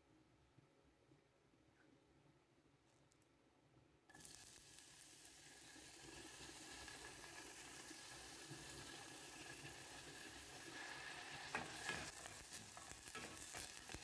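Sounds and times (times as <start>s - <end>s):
onion sizzling in oil: 4.1s - 14.0s.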